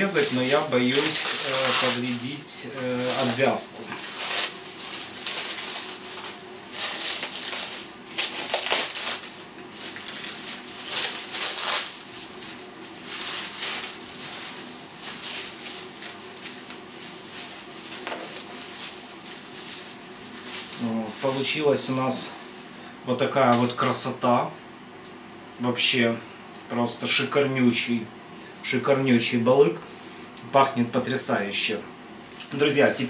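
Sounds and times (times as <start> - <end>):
plastic film crinkling: 0.0 - 22.8.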